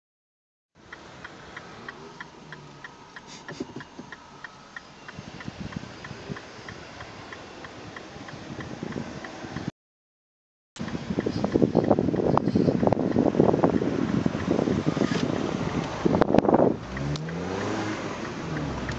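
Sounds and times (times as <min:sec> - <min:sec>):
car engine rumble: 0:00.8 - 0:09.7, 0:10.8 - 0:18.9
turn signal ticking: 0:00.8 - 0:09.7, 0:10.8 - 0:18.9.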